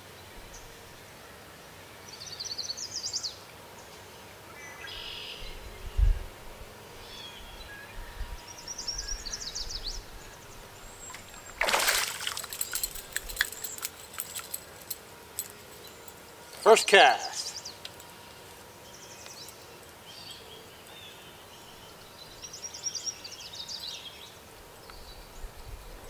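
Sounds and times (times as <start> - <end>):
songbirds singing: 0.0 - 26.0
water sloshing: 10.9 - 15.5
fish splashing in water: 11.0 - 14.2.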